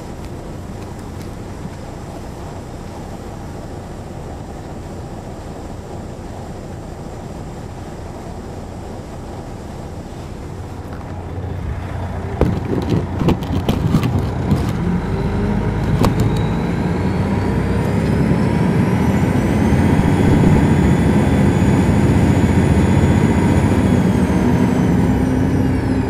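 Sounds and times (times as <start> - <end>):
bus diesel engine: 0.0 - 26.0
rising whine: 14.7 - 26.0.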